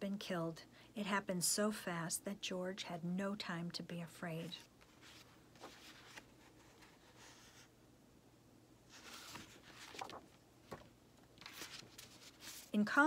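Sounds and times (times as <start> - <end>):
book pages turning: 4.6 - 7.7, 8.9 - 12.8.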